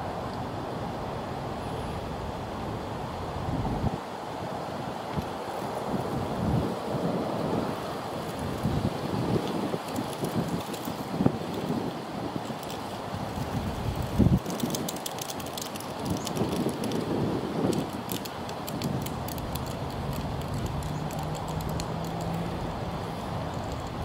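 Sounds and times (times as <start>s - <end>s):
wind buffeting microphone: 2.7s - 24.0s
light clicking and rustling: 9.3s - 11.8s, 12.4s - 24.0s.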